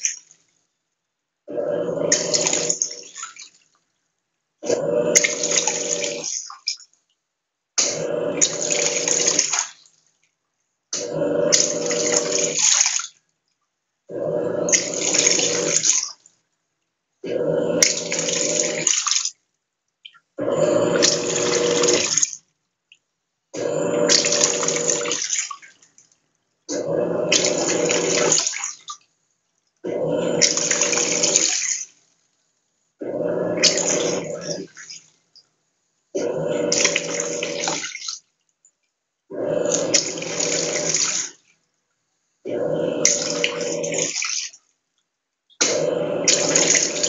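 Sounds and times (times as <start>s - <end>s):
washing machine motor humming: 1.5s - 3.3s, 4.6s - 6.4s, 7.8s - 9.6s, 11.0s - 12.8s, 14.1s - 16.1s, 17.2s - 19.0s, 20.4s - 22.3s, 23.6s - 25.6s, 26.7s - 28.8s, 29.8s - 31.8s, 33.0s - 35.0s, 36.2s - 38.0s, 39.3s - 41.3s, 42.5s - 44.4s, 45.6s - 47.0s
soapy water churning: 1.5s - 4.0s, 4.6s - 6.9s, 7.8s - 10.3s, 11.0s - 13.3s, 14.1s - 16.3s, 17.2s - 19.4s, 20.0s - 22.4s, 23.6s - 32.1s, 33.0s - 35.4s, 36.2s - 38.6s, 39.3s - 41.6s, 42.5s - 44.7s, 45.6s - 47.0s.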